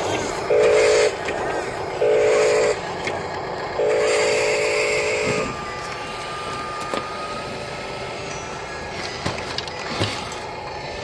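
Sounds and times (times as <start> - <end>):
small motor whining: 0.0 - 11.0
electronic air horn blasts: 0.5 - 1.3, 1.9 - 2.9, 3.8 - 5.7.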